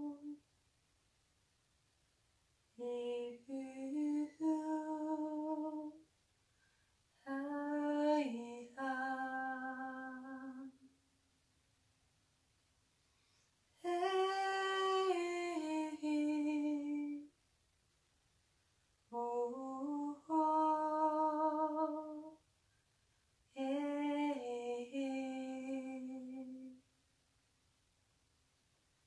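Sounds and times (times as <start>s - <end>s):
woman singing wordless notes: 0.0s - 0.4s, 2.8s - 6.0s, 7.2s - 10.9s, 13.8s - 17.3s, 19.1s - 22.4s, 23.5s - 26.8s.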